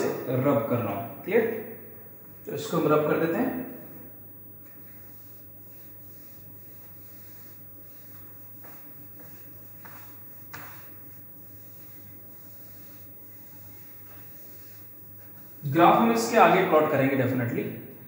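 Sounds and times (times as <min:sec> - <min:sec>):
eraser rubbing whiteboard: 0:04.7 - 0:17.0.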